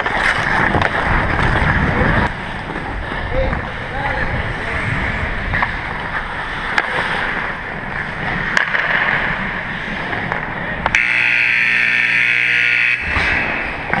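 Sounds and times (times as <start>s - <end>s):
skates rushing on ice: 0.0s - 11.0s
buzzy scoreboard horn: 10.9s - 13.9s.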